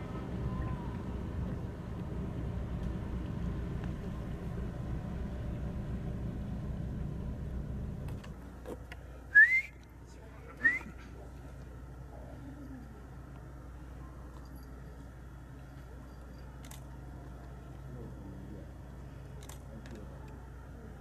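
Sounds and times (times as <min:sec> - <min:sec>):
ferry engine drone: 0:00.0 - 0:21.0
loud rising whistles: 0:09.3 - 0:09.8.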